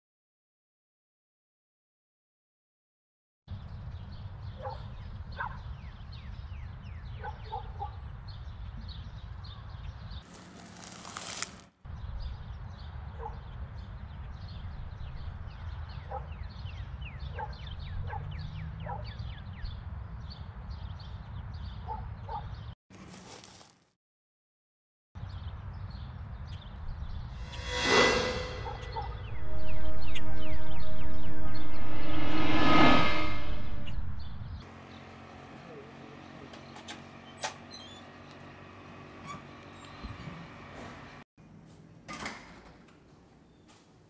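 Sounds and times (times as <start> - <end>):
loud rush of noise: 27.4 - 34.5
wind rumble on microphone: 28.6 - 34.6.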